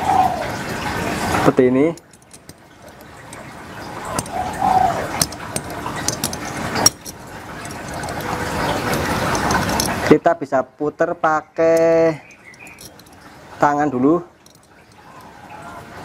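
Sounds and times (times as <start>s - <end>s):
handling sounds: 1.8s - 10.2s, 11.6s - 13.6s, 14.3s - 16.0s
sharp metal clicks: 1.9s - 10.1s, 11.6s - 13.3s, 14.4s - 15.4s.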